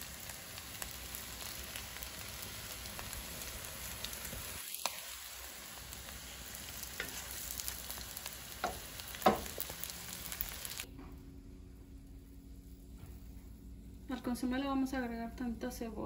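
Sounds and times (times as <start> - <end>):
food sizzling in a frying pan: 0.0 - 10.9.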